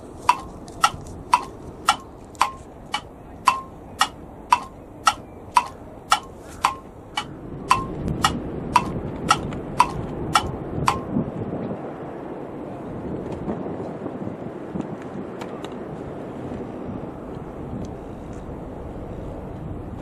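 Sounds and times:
wind rushing on microphone: 0.0s - 20.0s
clock ticking: 0.3s - 11.1s.

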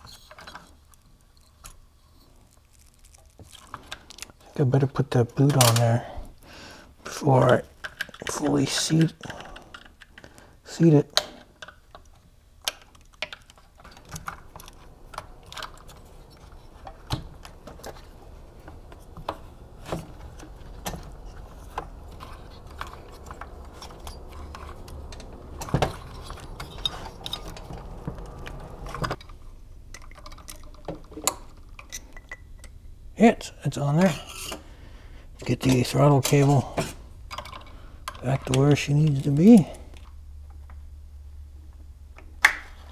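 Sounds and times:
low steady hum: 0.0s - 42.9s
small parts clicking and tapping: 7.4s - 10.5s, 11.2s - 32.8s, 37.3s - 39.3s.

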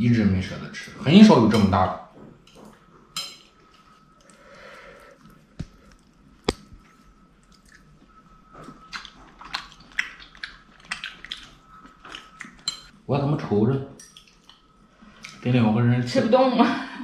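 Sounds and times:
soft eating sounds: 0.5s - 15.8s.

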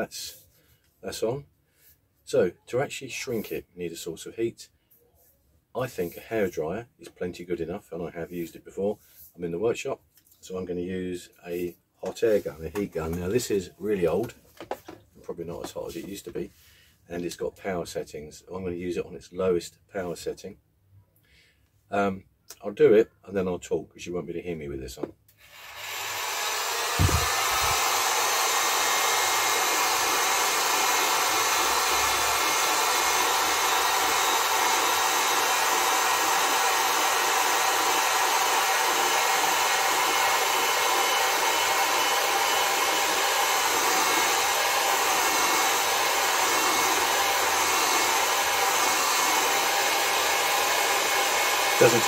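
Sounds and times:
heat gun blowing: 25.3s - 52.0s.

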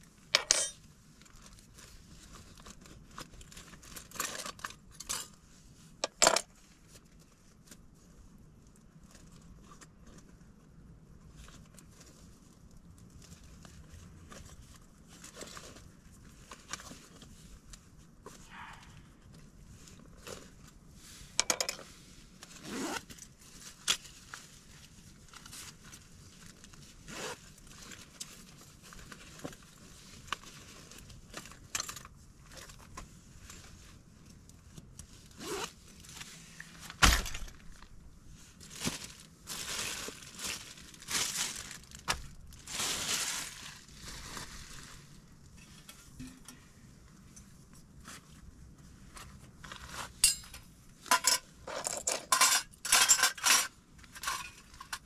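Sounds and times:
rustling: 32.4s - 51.1s.

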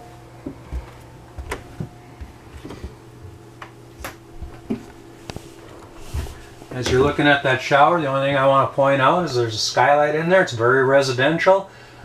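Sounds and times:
faint steady hum: 0.0s - 12.0s
footsteps on floor: 0.4s - 3.4s, 4.0s - 7.2s.

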